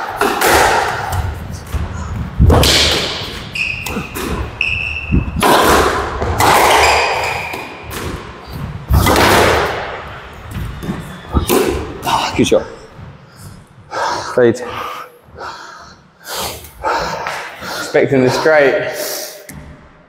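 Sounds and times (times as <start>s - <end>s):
squash ball echoing thuds: 0.0s - 12.1s
shoes squeaking on court floor: 3.2s - 5.4s, 6.2s - 8.8s, 10.2s - 12.0s.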